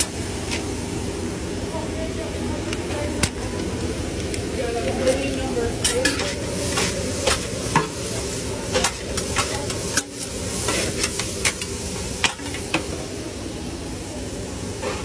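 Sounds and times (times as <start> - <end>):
food sizzling on a griddle: 0.0 - 15.0
metal spatulas scraping and clacking: 5.0 - 7.9, 8.7 - 12.6.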